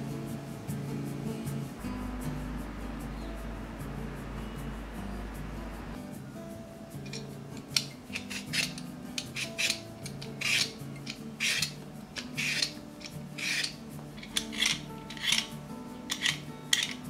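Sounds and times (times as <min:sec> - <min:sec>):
peeler scraping potato skin: 0:07.1 - 0:17.0.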